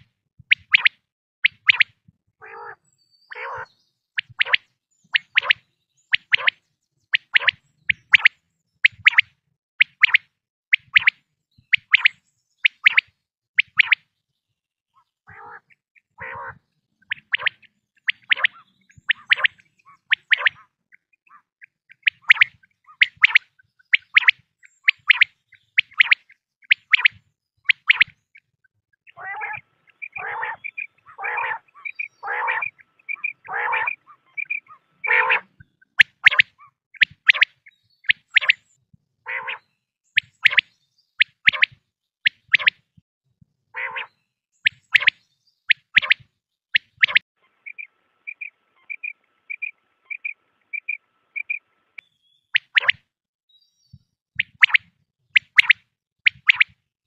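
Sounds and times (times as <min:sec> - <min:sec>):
quail sharp high calls: 0:00.0 - 0:06.6, 0:07.2 - 0:14.0, 0:15.0 - 0:28.5, 0:29.1 - 0:38.6, 0:39.3 - 0:42.8, 0:43.8 - 0:51.6, 0:52.5 - 0:53.0, 0:54.4 - 0:56.8
quail harsh lower calls: 0:02.4 - 0:03.8, 0:15.3 - 0:23.4, 0:29.1 - 0:37.5, 0:39.3 - 0:39.7, 0:43.8 - 0:44.1.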